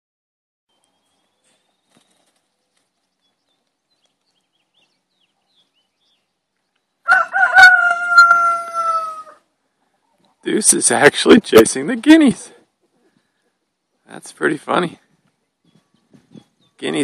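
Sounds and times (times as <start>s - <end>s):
rooster crowing: 7.1s - 9.4s.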